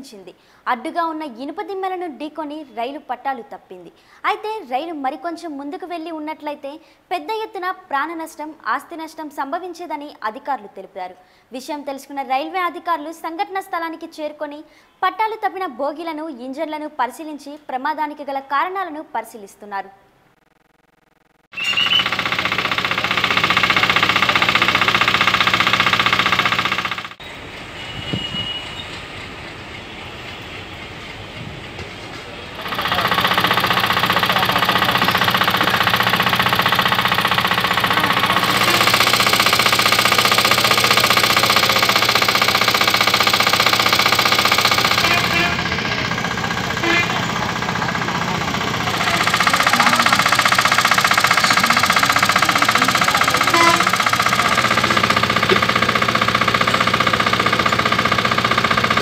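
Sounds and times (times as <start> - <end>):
engine humming: 32.2 - 59.0.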